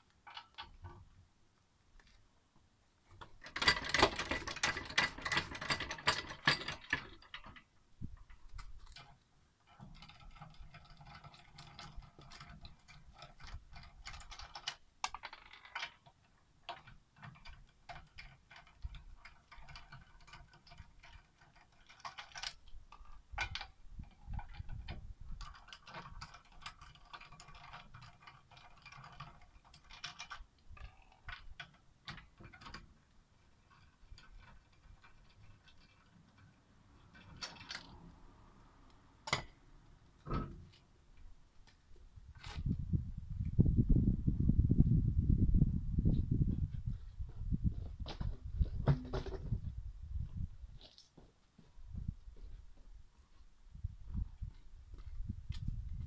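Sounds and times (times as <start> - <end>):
floor jack clicking and rattling: 3.2 - 7.7.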